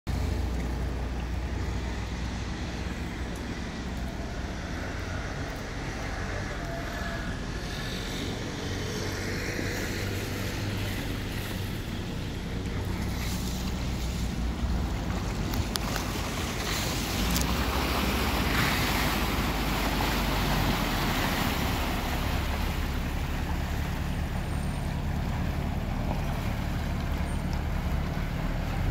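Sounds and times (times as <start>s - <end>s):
boat engine rumbling: 0.0s - 28.9s
outdoor city noise: 0.1s - 28.9s.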